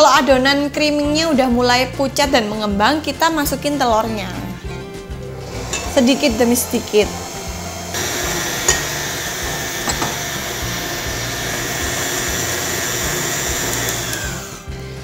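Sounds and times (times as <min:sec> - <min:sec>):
stand mixer running: 0:05.4 - 0:14.7.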